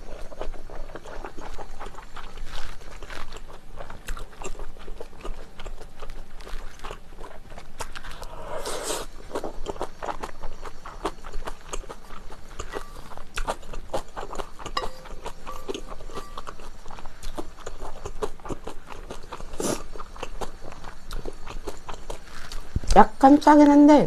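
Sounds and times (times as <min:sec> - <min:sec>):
wet chewing with clicks: 0:00.0 - 0:23.8
slurping noodles: 0:08.0 - 0:09.5, 0:19.3 - 0:19.9.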